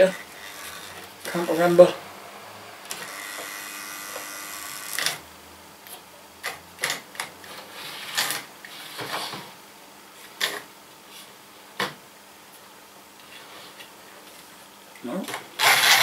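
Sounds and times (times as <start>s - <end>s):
electric motor hum: 0.0s - 5.7s.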